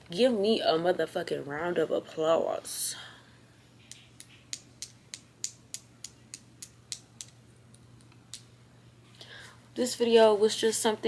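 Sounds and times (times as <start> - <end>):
finger snaps: 3.9 - 8.5.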